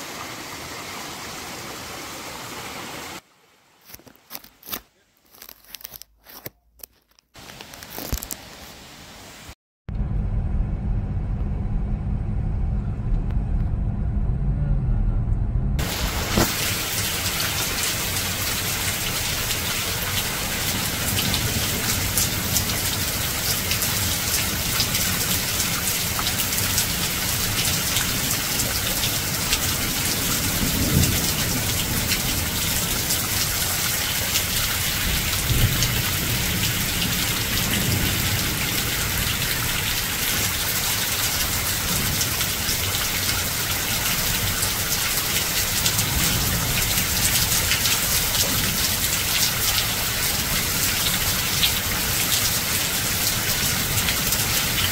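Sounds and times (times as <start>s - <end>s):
waterfall rushing: 0.0s - 3.2s, 15.8s - 30.6s.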